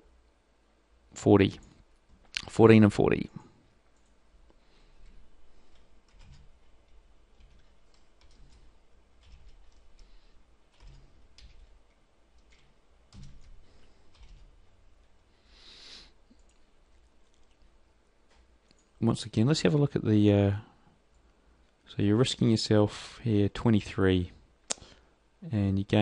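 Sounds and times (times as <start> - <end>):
typing on computer keyboard: 5.7 - 14.6.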